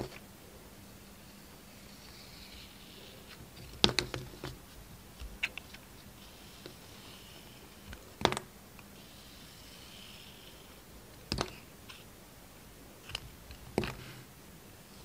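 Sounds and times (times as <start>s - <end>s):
faint scraping: 1.0s - 8.1s, 8.9s - 10.9s.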